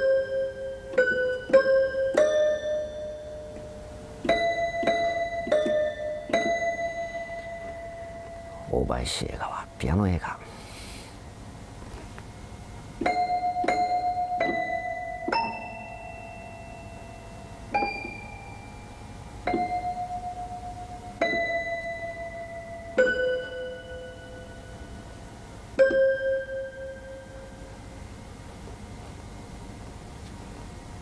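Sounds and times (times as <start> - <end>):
piano single notes: 0.0 - 8.8, 13.0 - 25.1.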